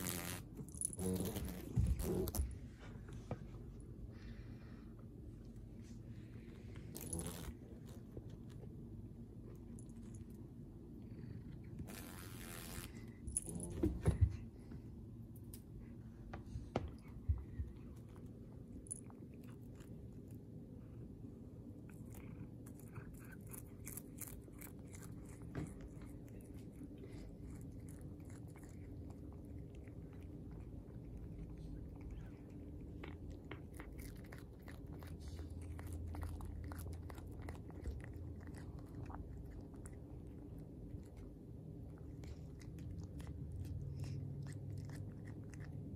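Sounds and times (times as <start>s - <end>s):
cat chewing with loud crunches: 16.9s - 45.9s.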